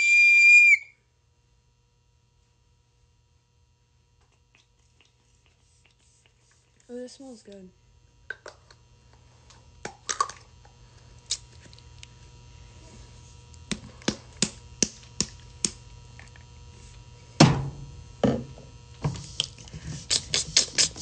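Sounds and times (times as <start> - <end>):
faint steady hum: 0.0 - 21.0
small objects clicking and tapping: 8.3 - 8.8
louder thunks: 17.4 - 18.4.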